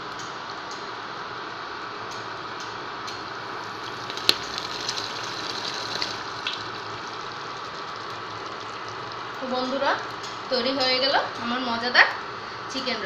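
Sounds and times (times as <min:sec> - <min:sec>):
gravy sizzling in a pan: 0:03.2 - 0:11.7
bubbles popping: 0:03.8 - 0:09.4.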